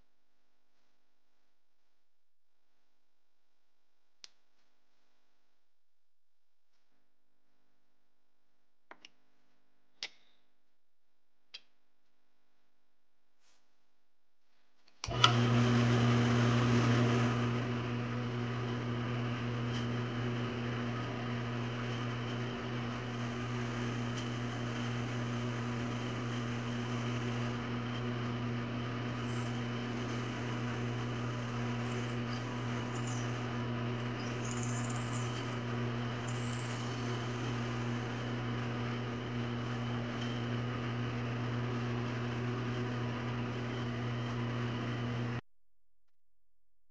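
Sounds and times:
drill press motor humming: 15.0 - 45.4
drill bit boring into wood: 19.6 - 40.4.

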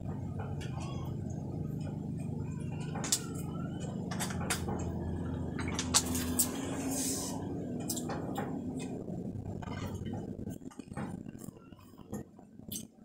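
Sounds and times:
steady low hum: 0.0 - 13.0
plastic cups clicking and crinkling: 5.5 - 6.4.

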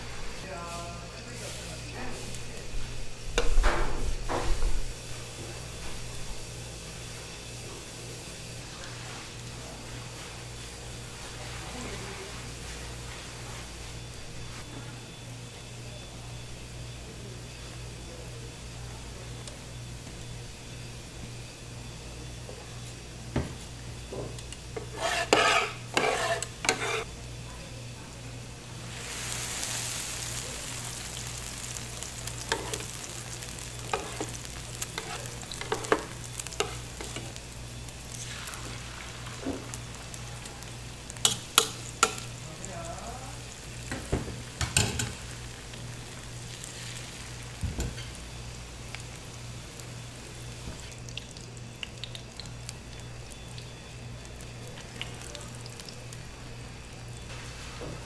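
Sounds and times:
egg sizzling on griddle: 0.0 - 58.0
plastic spatulas scraping pan: 24.8 - 27.0.

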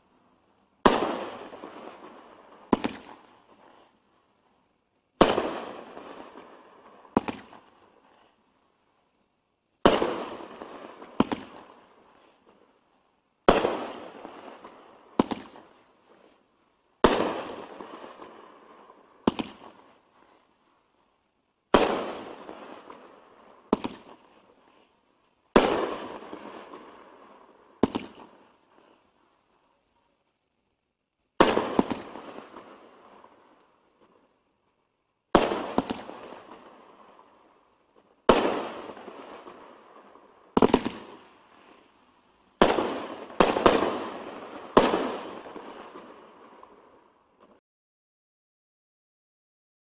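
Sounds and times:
firework bangs: 0.8 - 3.4, 5.2 - 7.8, 9.8 - 11.8, 13.5 - 15.7, 17.0 - 19.8, 21.7 - 24.4, 25.6 - 28.5, 31.4 - 33.0, 35.3 - 37.0, 38.2 - 41.8, 42.6 - 46.2.

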